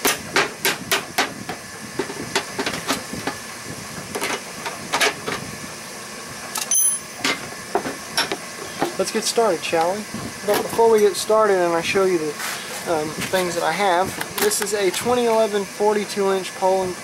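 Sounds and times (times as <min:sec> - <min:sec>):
tools clicking and clinking: 0:06.6 - 0:07.4.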